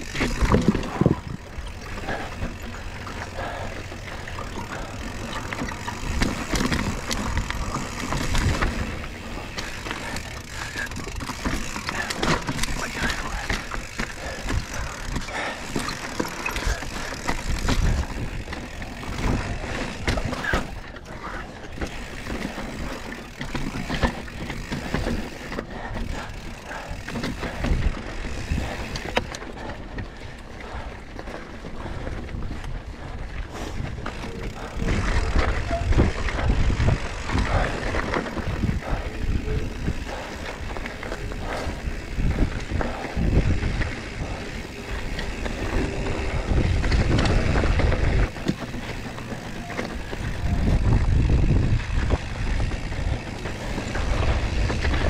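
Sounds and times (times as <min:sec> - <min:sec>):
chain and frame rattle: 0:00.0 - 0:32.7, 0:33.6 - 0:55.0
tyres rolling over dirt and rock: 0:00.0 - 0:55.0
bike knocking over bumps: 0:03.8 - 0:20.9.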